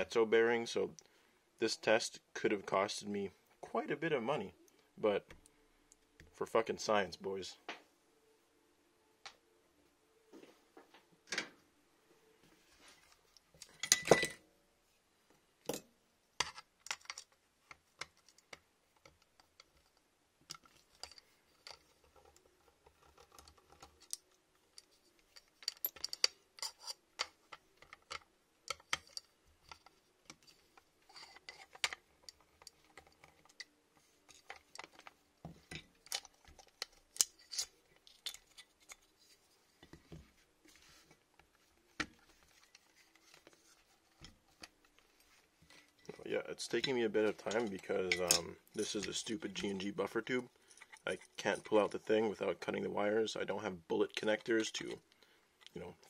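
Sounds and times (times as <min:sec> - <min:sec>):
parts clattering: 0:13.0 - 0:14.5, 0:15.7 - 0:52.4
small parts clicking and tapping: 0:15.7 - 0:40.0.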